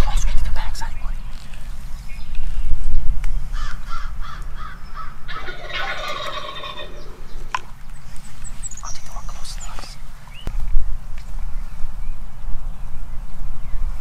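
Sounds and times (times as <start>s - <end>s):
short turkey calls: 3.6s - 7.2s
turkey gobbling: 4.0s - 7.4s.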